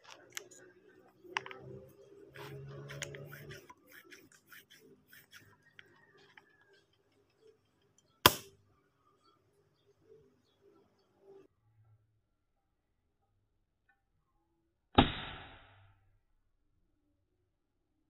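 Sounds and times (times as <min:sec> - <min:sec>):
small clicks and plastic scrapes: 0:00.0 - 0:08.1
air gun shot: 0:08.3 - 0:08.5, 0:15.0 - 0:15.8.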